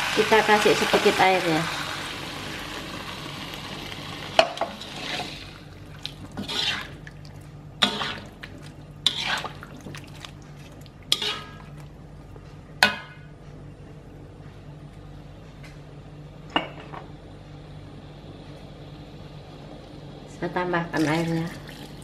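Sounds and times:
metal spatula scraping in a wok: 0:06.4 - 0:07.0, 0:07.8 - 0:08.3, 0:09.0 - 0:09.6, 0:11.1 - 0:11.7.

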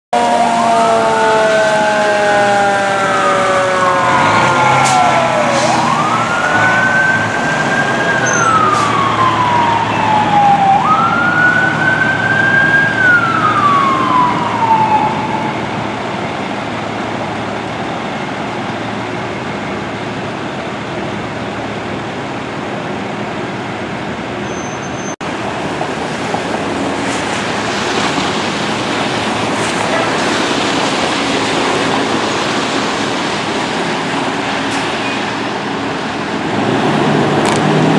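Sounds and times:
fire engine siren wailing: 0:00.1 - 0:23.0, 0:24.5 - 0:37.9
diesel engines running: 0:00.2 - 0:37.9
traffic on wet pavement: 0:00.2 - 0:37.9.

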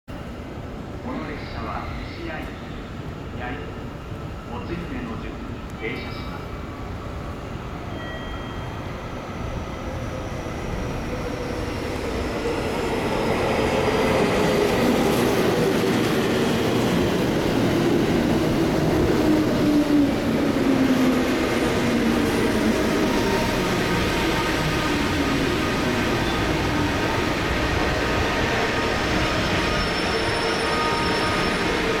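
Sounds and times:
electric train braking to a stop: 0:07.9 - 0:09.1, 0:28.8 - 0:32.0.

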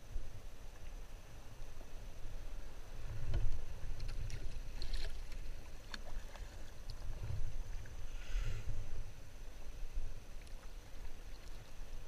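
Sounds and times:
water lapping and dripping: 0:01.6 - 0:08.4, 0:10.2 - 0:12.0
small splashes: 0:04.0 - 0:07.2.

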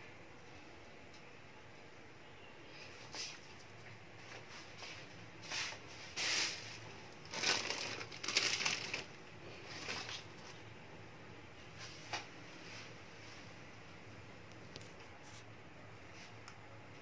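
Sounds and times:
plastic bags rustling: 0:06.2 - 0:10.6.

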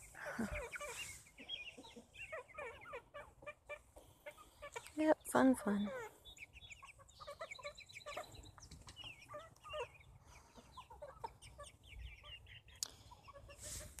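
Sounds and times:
chicks peeping and clucking: 0:00.0 - 0:14.0.

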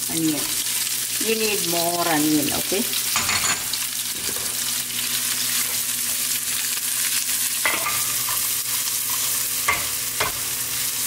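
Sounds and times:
onions sizzling in hot oil: 0:00.0 - 0:11.0
spoon scraping and knocking pan: 0:07.6 - 0:10.6.

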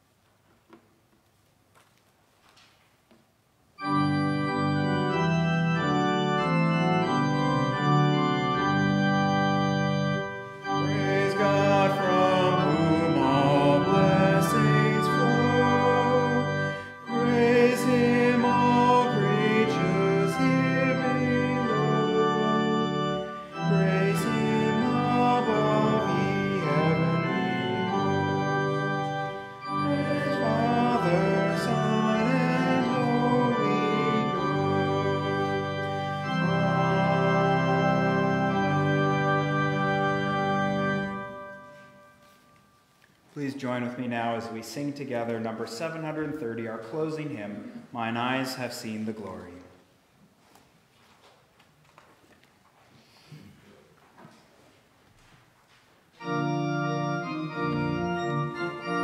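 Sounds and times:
church organ playing hymn: 0:03.7 - 0:49.8, 0:56.1 - 0:59.0
man singing: 0:10.8 - 0:23.0, 0:23.6 - 0:29.1, 0:29.7 - 0:39.1.

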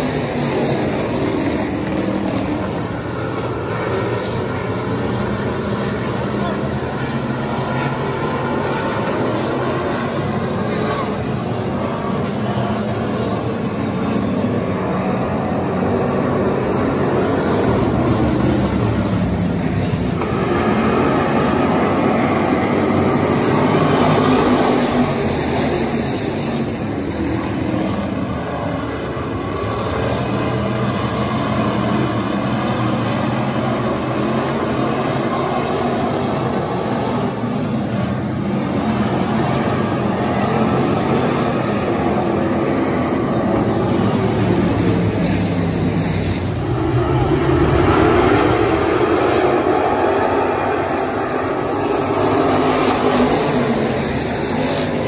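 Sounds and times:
race car engines running hard: 0:00.0 - 0:55.0.

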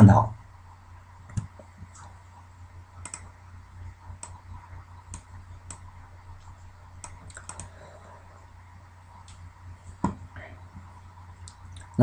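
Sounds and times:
low electrical hum: 0:00.0 - 0:12.0
computer mouse clicks: 0:01.3 - 0:02.2, 0:03.0 - 0:03.3, 0:04.1 - 0:04.5, 0:05.1 - 0:07.8.

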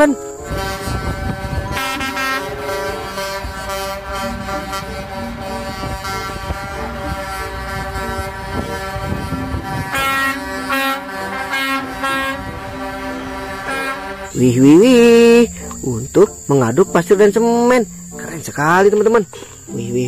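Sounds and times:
truck air horns: 0:00.0 - 0:15.9
truck engines rumbling: 0:00.0 - 0:19.6.

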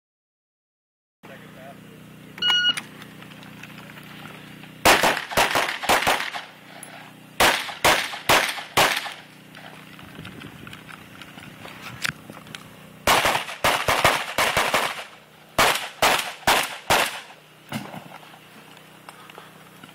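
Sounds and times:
shot timer beep: 0:02.4 - 0:02.8
rapid rifle fire: 0:04.8 - 0:06.6, 0:07.4 - 0:09.3, 0:13.0 - 0:17.9.

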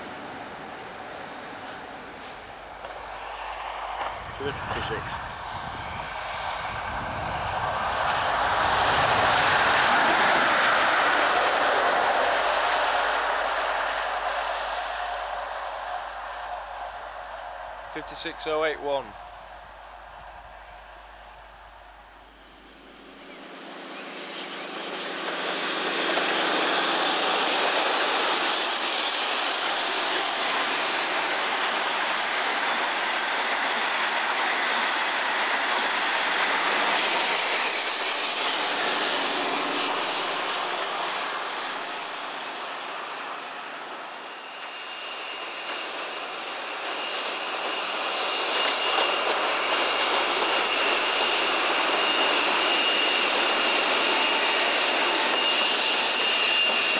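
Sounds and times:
diesel engine whine: 0:00.0 - 0:23.2
train rushing roar: 0:00.0 - 0:23.2, 0:45.4 - 0:56.9
high whine: 0:00.0 - 0:23.4, 0:47.2 - 0:56.9.

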